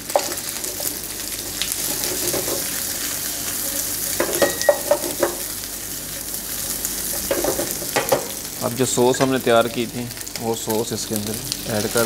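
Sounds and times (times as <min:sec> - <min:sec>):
food sizzling in a frying pan: 0:00.0 - 0:12.0
spatula scraping a pan: 0:01.8 - 0:02.8.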